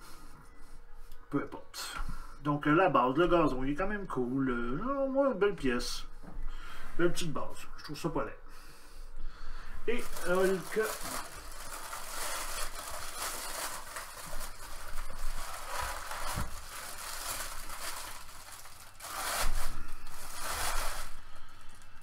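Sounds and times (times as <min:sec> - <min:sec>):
tissue paper rustling: 0:09.9 - 0:21.7.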